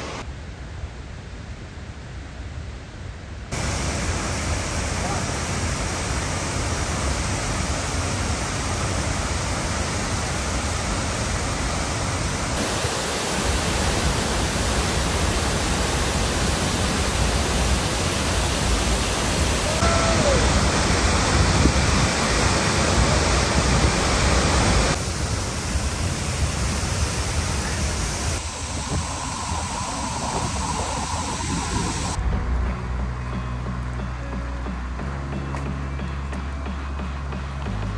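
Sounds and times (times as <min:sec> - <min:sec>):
waterfall rushing: 0:00.0 - 0:00.2, 0:03.5 - 0:32.2.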